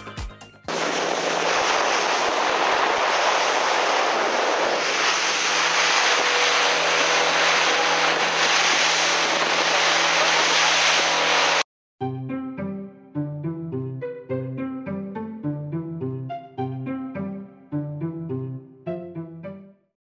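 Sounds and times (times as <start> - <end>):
music: 0.0 - 0.7, 12.0 - 20.0
boat engine drone: 0.7 - 11.6
rushing wind and water: 0.7 - 11.6.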